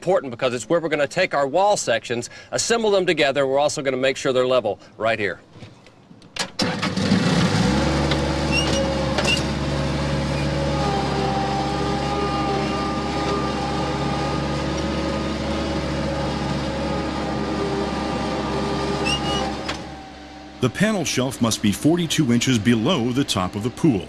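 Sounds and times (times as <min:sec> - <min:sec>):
diesel engine running: 0:06.6 - 0:24.0.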